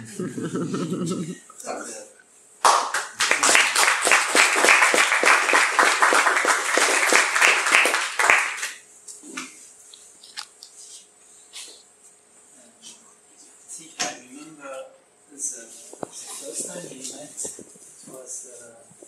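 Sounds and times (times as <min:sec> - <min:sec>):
audience applauding: 0:02.6 - 0:08.8.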